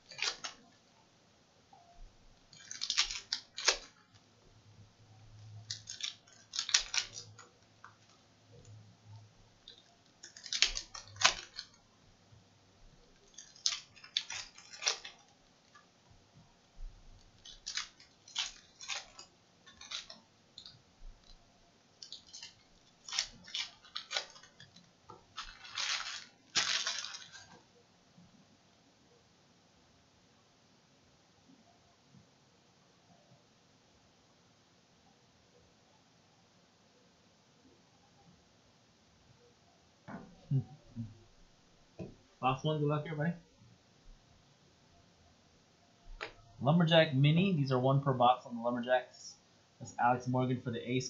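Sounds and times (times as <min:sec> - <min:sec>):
cards rustling and slapping: 0:00.0 - 0:00.6, 0:02.6 - 0:04.2, 0:05.7 - 0:08.1, 0:09.7 - 0:11.8, 0:13.2 - 0:15.8, 0:17.2 - 0:21.4, 0:22.0 - 0:27.6.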